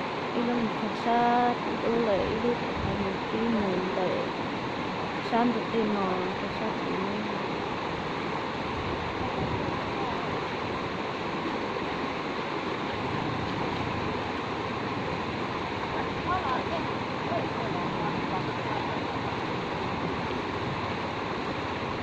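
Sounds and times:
river rushing over stones: 0.0s - 22.0s.

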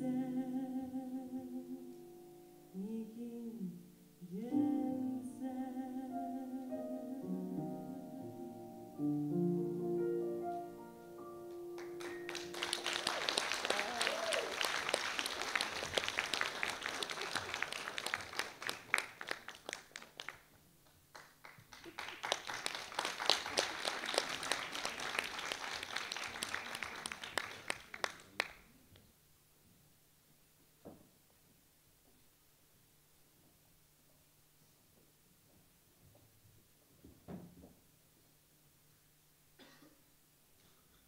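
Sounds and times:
piano chord ringing: 6.8s - 12.8s
audience applauding: 11.8s - 28.6s.

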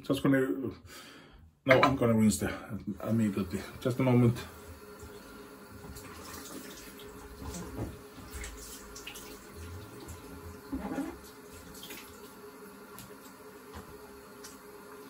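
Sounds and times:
water running from a tap: 2.8s - 15.0s.

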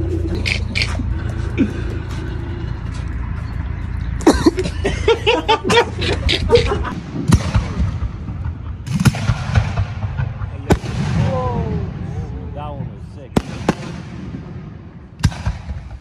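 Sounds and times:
people laughing and calling out: 4.2s - 7.0s
firework bangs: 7.0s - 12.2s, 13.3s - 16.0s.

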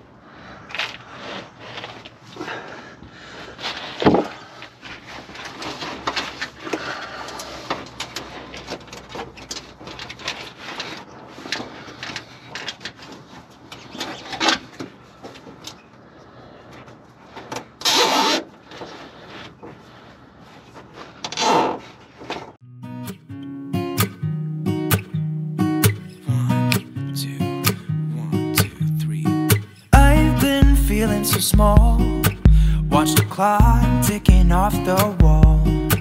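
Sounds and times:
rubbing and scraping: 0.7s - 22.6s.

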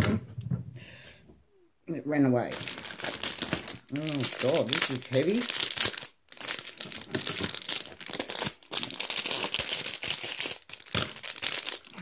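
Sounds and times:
plastic wrapper crinkling: 2.5s - 12.0s.

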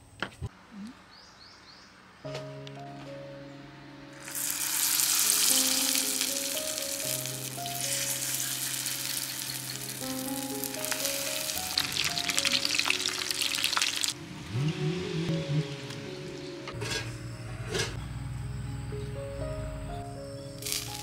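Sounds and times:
spring rolls sizzling in oil: 4.2s - 14.2s, 20.6s - 21.0s.

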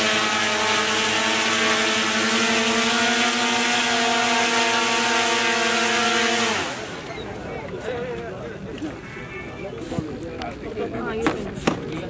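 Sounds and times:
model plane motors buzzing: 0.0s - 7.1s.

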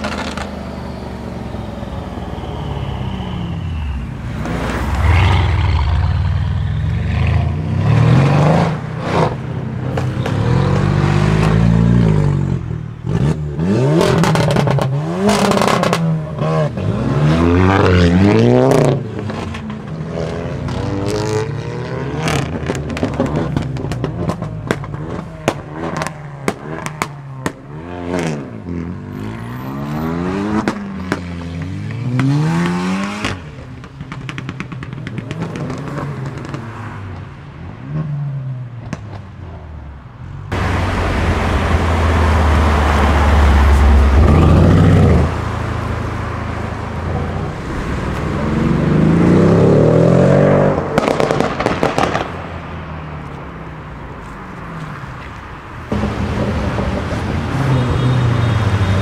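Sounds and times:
exhaust pops and crackles: 0.0s - 0.6s, 22.3s - 27.7s, 31.9s - 37.3s, 38.8s - 39.3s, 50.8s - 52.6s
loud deep engine rumble: 40.4s - 52.2s.

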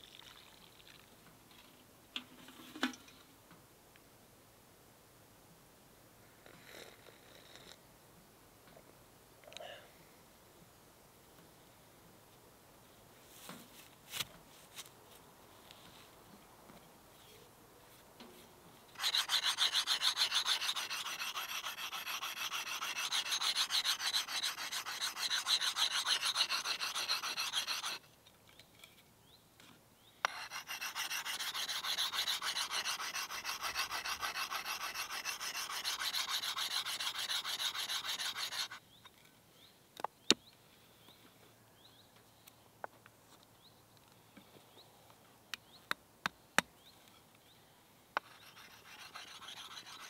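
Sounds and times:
sharpening tool rasping on axe: 19.0s - 28.0s, 30.2s - 38.8s, 48.2s - 50.0s.

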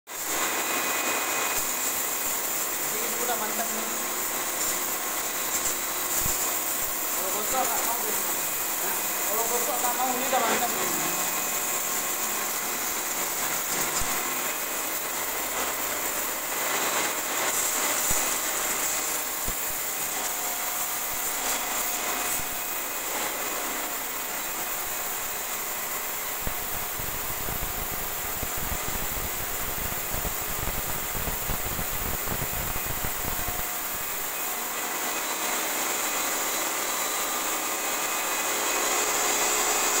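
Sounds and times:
water jet spraying on tiles: 0.1s - 40.0s
pressure washer motor whining: 0.4s - 29.4s.

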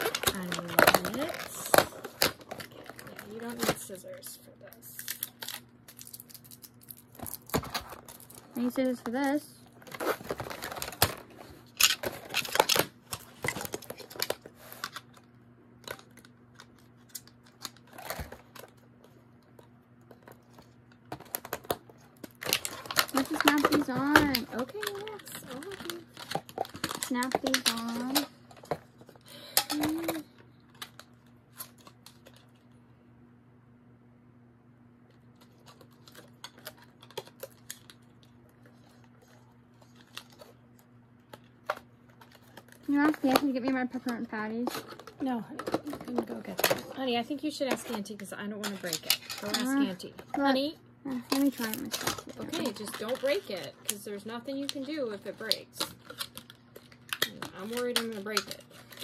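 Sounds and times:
plastic toy clicks and rattles: 22.4s - 28.3s, 51.3s - 56.5s, 57.1s - 59.0s.

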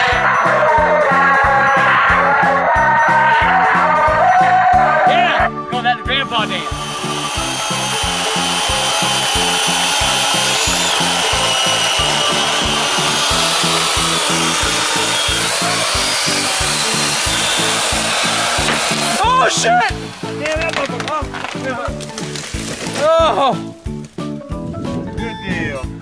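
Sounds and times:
electric chainsaw cutting wood: 6.2s - 24.2s.

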